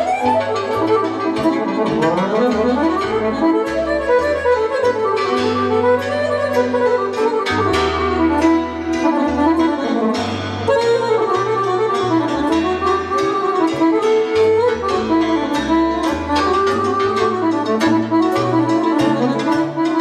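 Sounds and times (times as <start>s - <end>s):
accordion: 0.0s - 20.0s
electric violin melody: 0.0s - 20.0s
plucked double bass: 0.0s - 20.0s.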